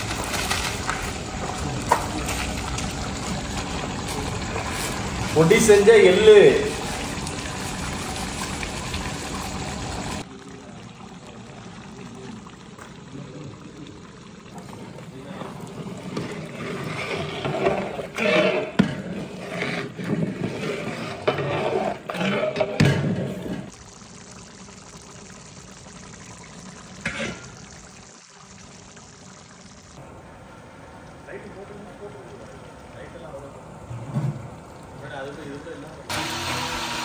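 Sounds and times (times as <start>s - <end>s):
ladle stirring thick liquid: 13.9s - 29.8s.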